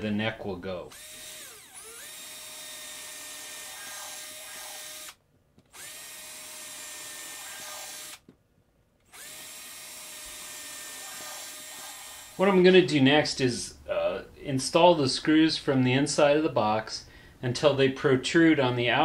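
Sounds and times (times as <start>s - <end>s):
electric drill boring wood: 0.9s - 8.2s, 9.1s - 12.4s.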